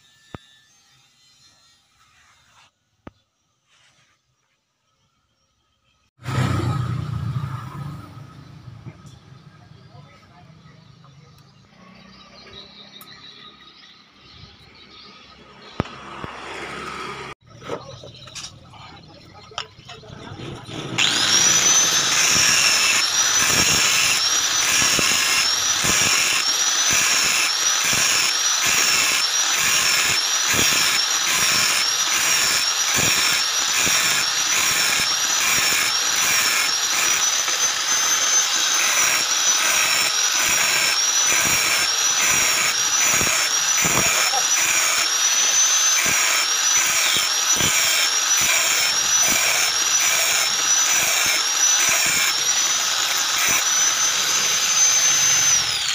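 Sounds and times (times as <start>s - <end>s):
angle grinder whining against metal can: 20.5s - 55.9s.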